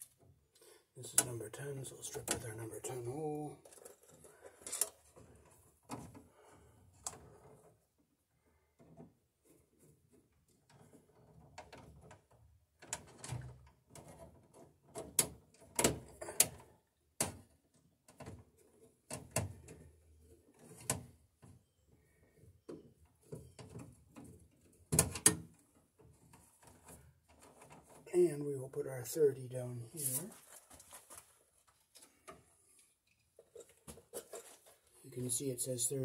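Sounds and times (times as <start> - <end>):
clicks and scrapes of hand tools: 3.6 - 5.2.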